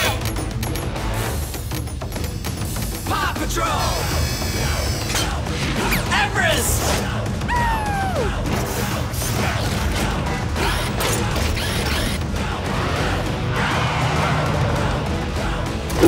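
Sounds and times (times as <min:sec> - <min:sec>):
cartoon mechanical whirring and clanking: 0:00.0 - 0:06.1, 0:08.6 - 0:12.3
background music: 0:00.0 - 0:16.0.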